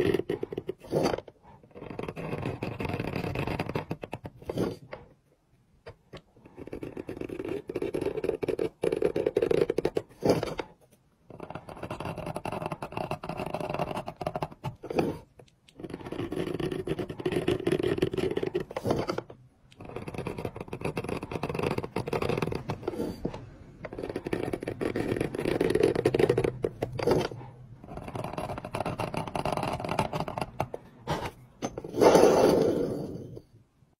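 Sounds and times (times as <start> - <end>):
knife scraping stone: 23.9 - 33.5.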